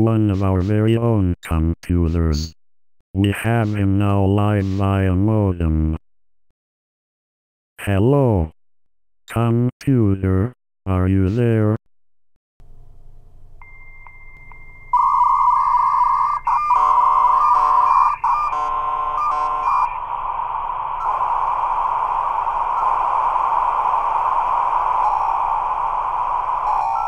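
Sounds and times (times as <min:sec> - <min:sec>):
dial-up modem tones: 0:13.6 - 0:27.0
static hiss: 0:17.8 - 0:27.0.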